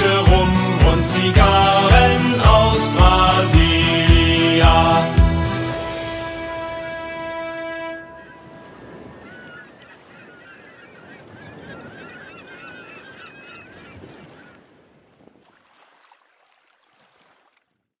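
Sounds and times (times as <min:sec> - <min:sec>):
flock of birds calling: 0:07.4 - 0:14.6
small waves washing against rocks: 0:14.0 - 0:17.7.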